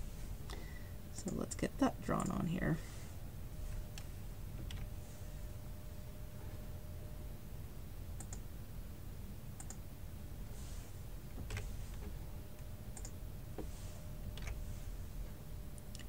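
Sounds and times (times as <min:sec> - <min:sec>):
faint steady background noise: 0:00.0 - 0:16.0
computer mouse clicks: 0:08.2 - 0:08.4, 0:09.6 - 0:09.8, 0:12.9 - 0:13.2.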